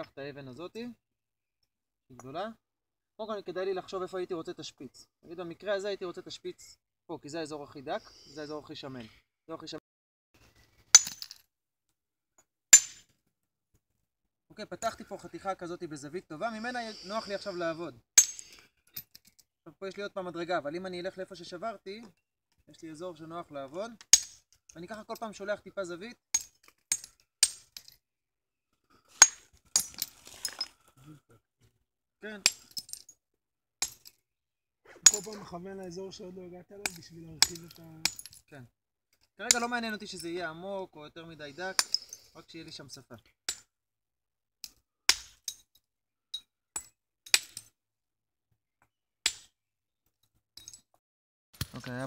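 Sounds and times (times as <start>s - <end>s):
hammerstone striking flint: 10.9s - 11.4s, 12.8s - 13.1s, 18.2s - 19.1s, 24.0s - 24.5s, 26.3s - 28.0s, 29.2s - 30.7s, 33.8s - 34.2s, 35.0s - 35.4s, 36.8s - 38.4s, 41.7s - 42.2s, 43.5s - 43.7s, 44.6s - 45.8s, 46.4s - 47.8s, 49.2s - 49.6s.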